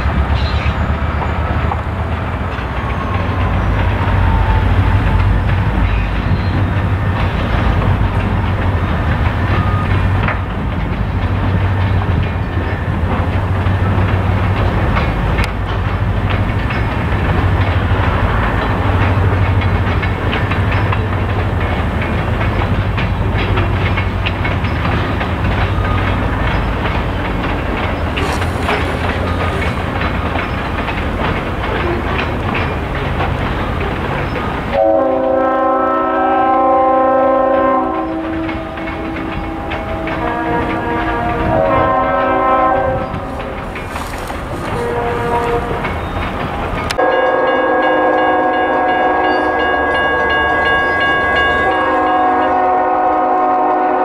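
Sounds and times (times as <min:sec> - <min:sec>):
rail clicks: 0:00.0 - 0:54.0
train wheels rumbling: 0:00.0 - 0:54.0
train horn chord: 0:34.7 - 0:43.6, 0:44.5 - 0:45.9, 0:47.0 - 0:54.0.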